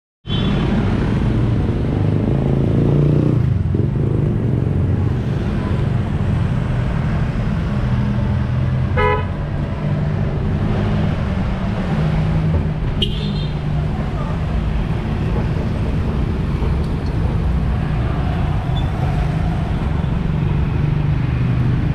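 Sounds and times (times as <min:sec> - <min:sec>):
motorcycle and car engines rumbling: 0:00.3 - 0:21.9
car horn toot: 0:09.0 - 0:09.4, 0:13.0 - 0:13.5.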